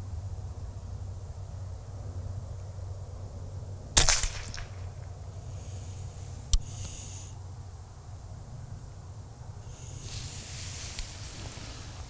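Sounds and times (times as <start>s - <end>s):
sharp click: 4.0s - 4.9s
air rifle shot: 4.0s - 5.1s.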